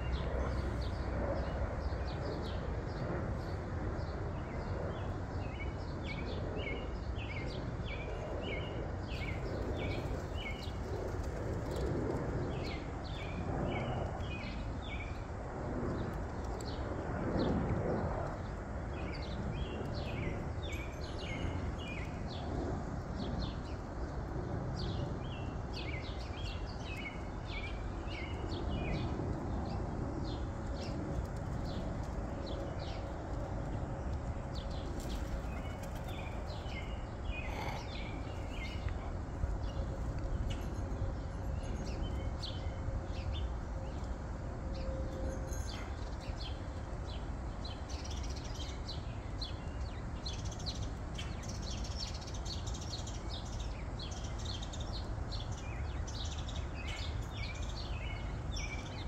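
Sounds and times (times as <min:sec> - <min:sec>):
small birds chirping: 0:00.0 - 0:11.9, 0:23.2 - 0:40.8
low outdoor background noise: 0:00.0 - 0:59.0.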